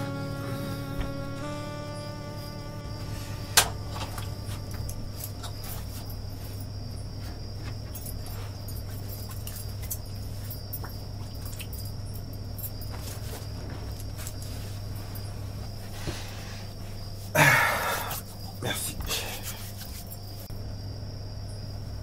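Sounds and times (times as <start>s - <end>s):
low hum: 0.0s - 6.6s
crickets chirping: 0.0s - 22.0s.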